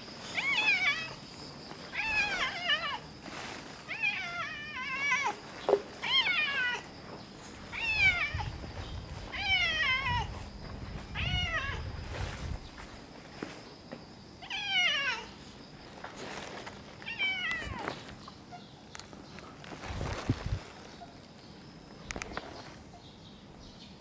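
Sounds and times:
cat meowing: 0:07.7 - 0:08.5, 0:09.3 - 0:10.3, 0:11.1 - 0:11.9, 0:17.1 - 0:17.8.

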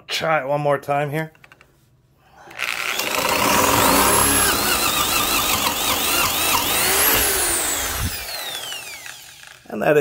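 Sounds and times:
drill bit boring into wood: 0:02.5 - 0:09.7
drill motor whining: 0:02.5 - 0:09.7.

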